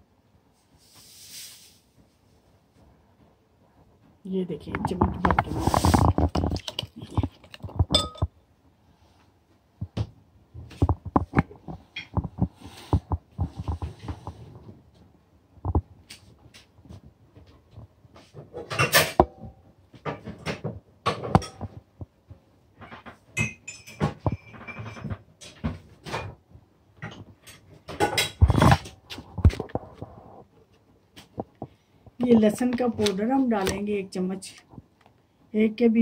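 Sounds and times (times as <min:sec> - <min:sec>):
rustling: 0:04.6 - 0:08.0
metal spoon clinking on glass bowl: 0:07.9 - 0:08.3, 0:23.4 - 0:24.9.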